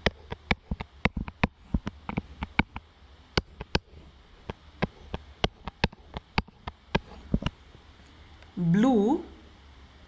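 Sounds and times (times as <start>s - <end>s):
stylus tapping on a screen: 0.0s - 7.6s
faint low hum: 0.0s - 10.0s.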